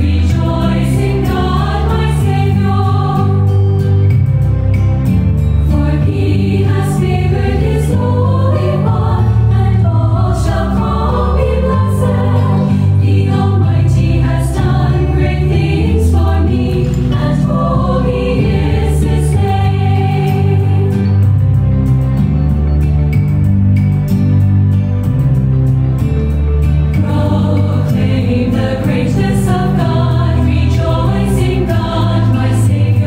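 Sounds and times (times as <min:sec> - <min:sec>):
choir singing a hymn: 0:00.0 - 0:04.1, 0:05.6 - 0:21.8, 0:27.0 - 0:33.0
instrumental accompaniment: 0:00.0 - 0:33.0.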